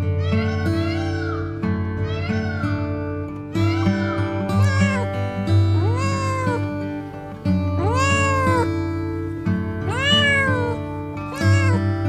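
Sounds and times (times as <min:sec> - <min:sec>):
drawn-out animal calls: 0:03.6 - 0:06.7, 0:07.8 - 0:10.8, 0:11.4 - 0:12.0.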